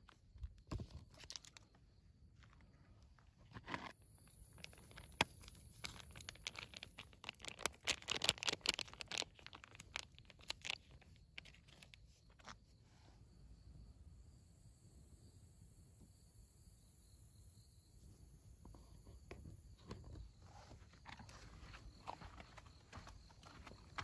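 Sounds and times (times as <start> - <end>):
crinkling and rustling: 0.0 - 1.8, 2.4 - 12.6, 19.3 - 24.0
faint high insect chirr: 0.0 - 24.0.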